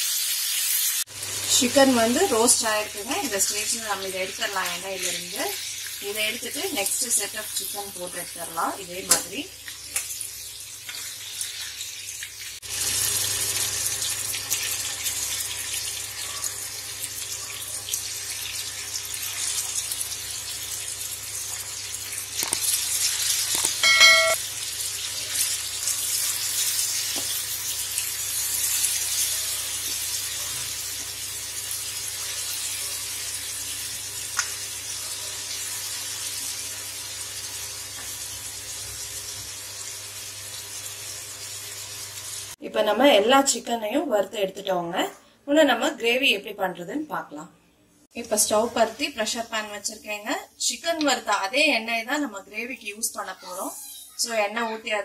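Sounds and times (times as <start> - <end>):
chicken sizzling in hot oil: 0.0 - 42.6
brief ringing tone: 23.8 - 24.4.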